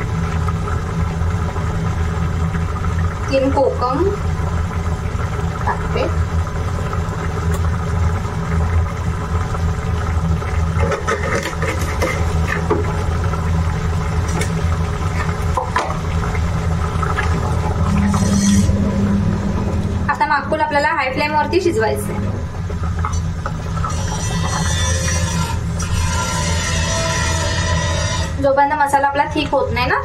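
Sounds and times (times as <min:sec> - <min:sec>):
low mechanical hum: 0:00.0 - 0:30.0
spatula scraping steel pan: 0:17.9 - 0:18.8, 0:23.8 - 0:28.4.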